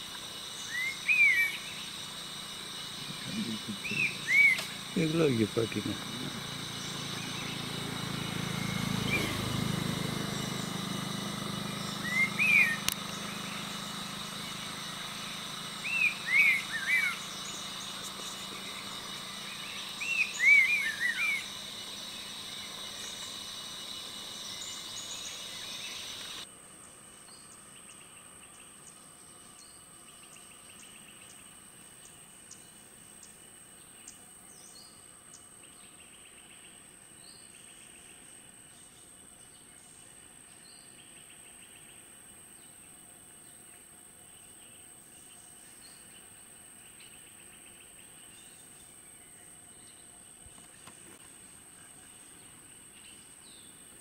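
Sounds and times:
bird calling downward notes: 0:00.0 - 0:26.4
faint insect chirping: 0:00.0 - 0:54.0
insect drone: 0:00.0 - 0:54.0.

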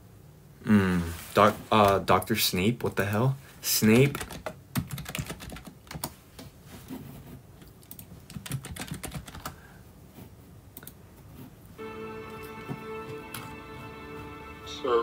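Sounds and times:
steady music: 0:11.8 - 0:15.0.

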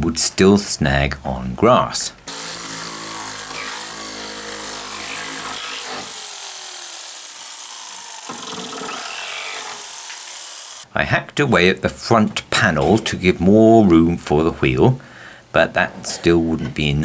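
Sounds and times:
jigsaw cutting wood: 0:02.3 - 0:10.9.

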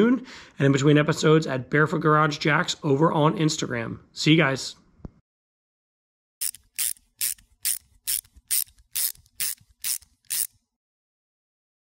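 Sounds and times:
socket ratchet wrench strokes: 0:06.4 - 0:10.7.

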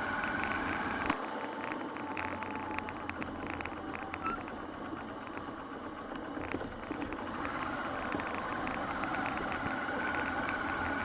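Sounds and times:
motorcycle engine running: 0:00.0 - 0:11.0
rattles and clicks: 0:00.0 - 0:11.0.

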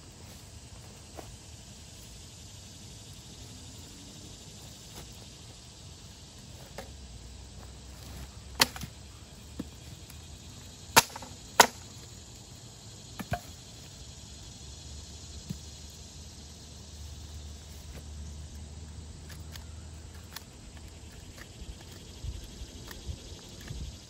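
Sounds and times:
wooden branch cracks and knocks: 0:08.6 - 0:09.0, 0:11.0 - 0:11.8.

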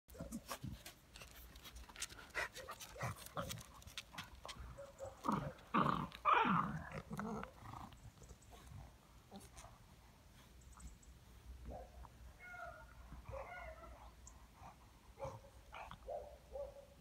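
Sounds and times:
dogs scuffling: 0:00.2 - 0:06.3
dogs play growling: 0:02.3 - 0:09.7, 0:14.5 - 0:16.1.

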